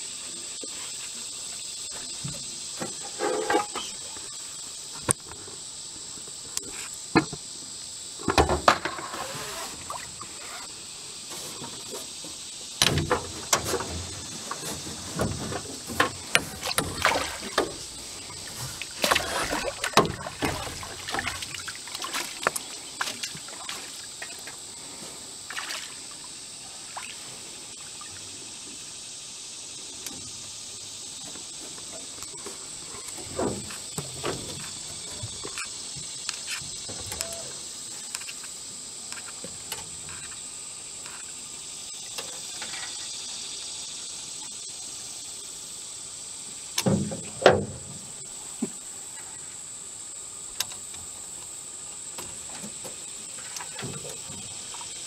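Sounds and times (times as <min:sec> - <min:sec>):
high-pitched insect buzz: 0:00.0 - 0:55.0
water splashing and sloshing: 0:08.2 - 0:28.2, 0:31.2 - 0:37.4, 0:52.2 - 0:55.0.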